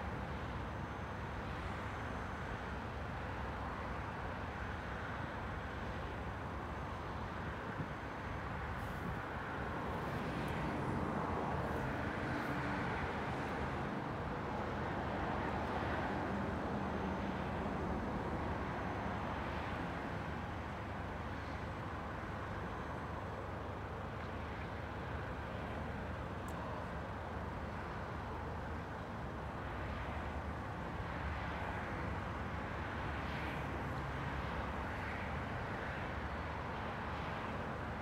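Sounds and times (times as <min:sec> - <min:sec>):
road traffic rushing past: 0:08.4 - 0:22.5.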